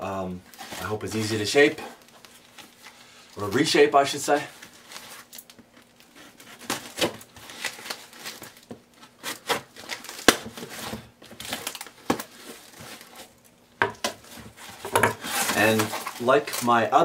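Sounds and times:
knife slicing packing tape: 9.2s - 11.9s
cardboard flaps rustling: 14.0s - 16.9s.

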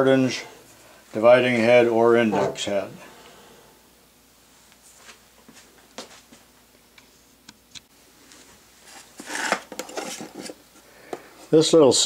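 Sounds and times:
wooden box scraping on metal table: 2.2s - 2.9s.

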